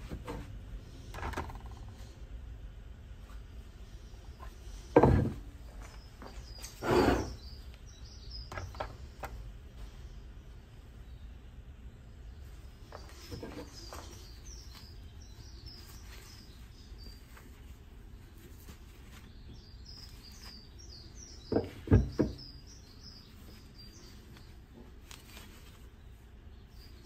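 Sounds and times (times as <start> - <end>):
small bird chirping: 5.6 - 9.3, 12.2 - 27.0.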